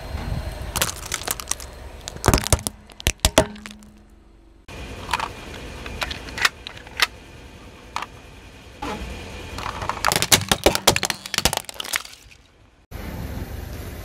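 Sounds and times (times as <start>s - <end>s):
plastic brush crunching and cracking: 0.8s - 4.0s, 9.9s - 12.5s.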